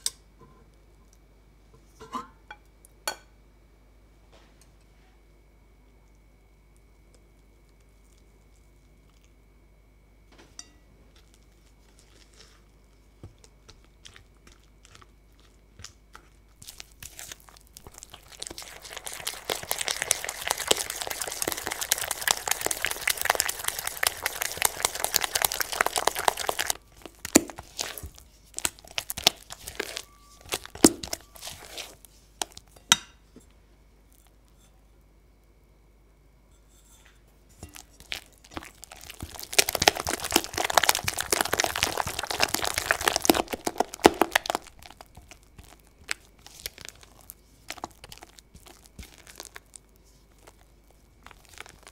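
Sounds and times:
spatula beating batter in bowl: 0:11.2 - 0:32.8, 0:37.5 - 0:51.9
spatula scraping and tapping bowl: 0:25.8 - 0:33.5, 0:36.5 - 0:40.6.

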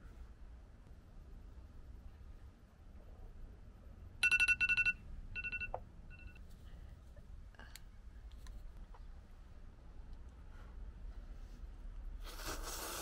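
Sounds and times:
phone timer alarm beeping: 0:04.2 - 0:06.4.

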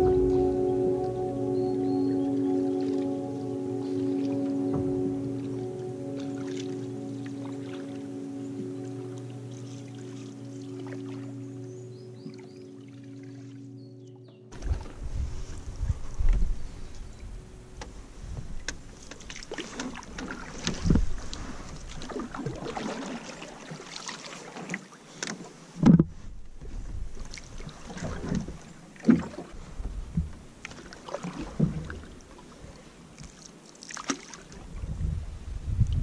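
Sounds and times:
canoe paddle splashing: 0:00.0 - 0:13.8, 0:14.5 - 0:34.8
water dripping from paddle: 0:03.8 - 0:13.5, 0:18.6 - 0:25.4, 0:30.6 - 0:32.4, 0:33.2 - 0:34.5.

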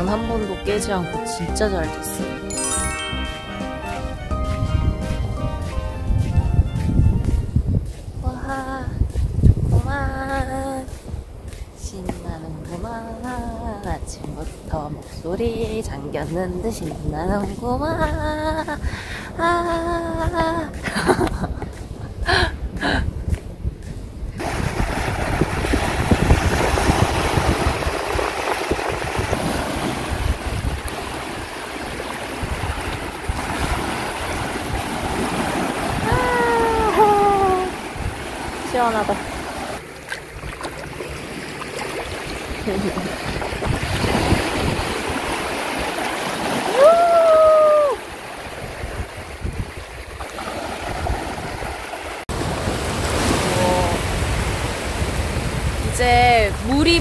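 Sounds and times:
wind on microphone: 0:04.0 - 0:57.0
surf washing onto beach: 0:24.4 - 0:57.0
person exclaiming: 0:36.0 - 0:37.8, 0:46.7 - 0:48.0.

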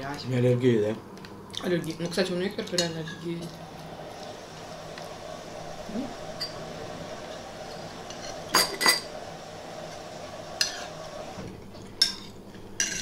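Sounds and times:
spoons clinking against bowls: 0:12.0 - 0:13.0.

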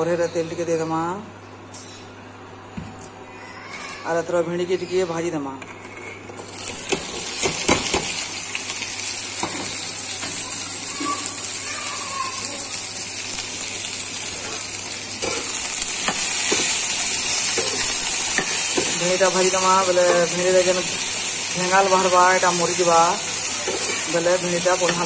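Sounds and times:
frying sizzle: 0:06.3 - 0:25.0
vegetable pieces clattering in pan: 0:06.4 - 0:08.4, 0:14.4 - 0:21.3, 0:22.4 - 0:25.0.

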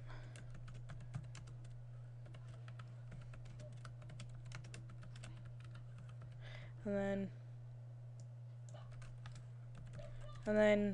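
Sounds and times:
keyboard typing: 0:00.3 - 0:06.4, 0:08.7 - 0:10.6.

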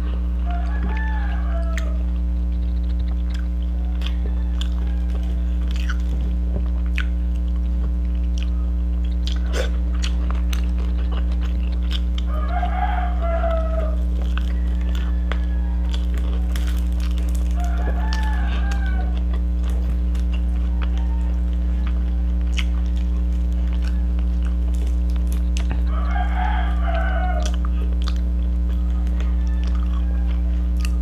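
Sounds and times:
eating by hand and chewing: 0:00.0 - 0:31.0
steady low hum: 0:00.0 - 0:31.0
animal calling: 0:12.3 - 0:16.8.

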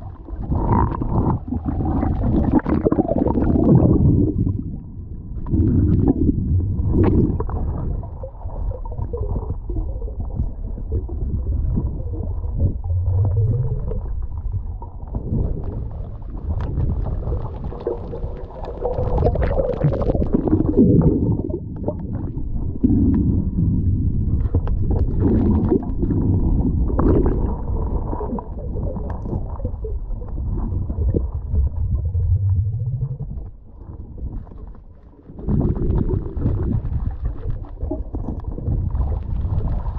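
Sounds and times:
muffled underwater rumble and gurgling: 0:00.0 - 0:39.9
sharp clicks and crackles: 0:07.0 - 0:23.4.

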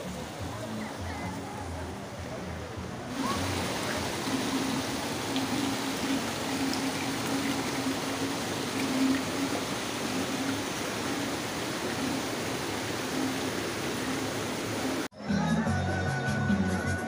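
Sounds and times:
water pouring into a tank: 0:03.1 - 0:15.1.

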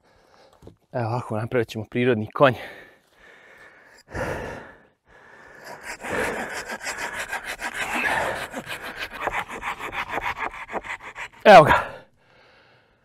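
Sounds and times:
hand saw cutting wood: 0:05.5 - 0:11.9.

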